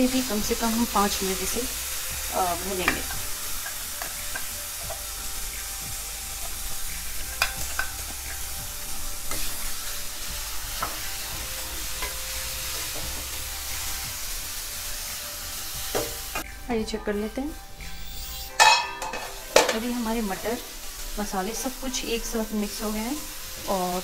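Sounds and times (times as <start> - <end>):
peas sizzling in oil: 0.0 - 24.0
spatula stirring and scraping: 2.8 - 16.2.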